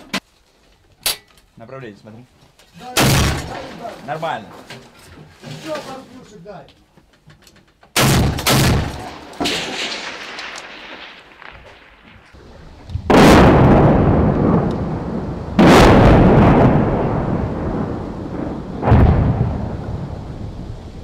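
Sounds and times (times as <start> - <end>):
heavy artillery blasts: 2.9 - 4.4, 8.0 - 21.0
long rolling rumble: 12.4 - 21.0.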